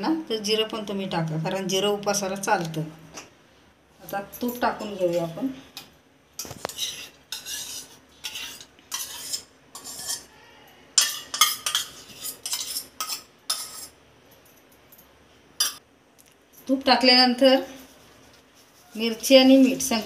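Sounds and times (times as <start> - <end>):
spoon scraping and clinking on metal: 6.4 - 10.3, 11.0 - 14.0, 15.6 - 15.8.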